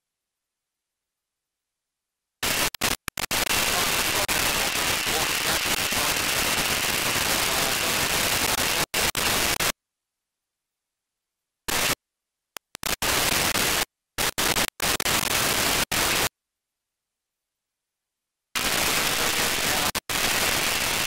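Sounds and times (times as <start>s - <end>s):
radio receiver static hiss: 2.4s - 9.8s, 11.7s - 12.0s, 12.6s - 16.3s, 18.6s - 21.0s.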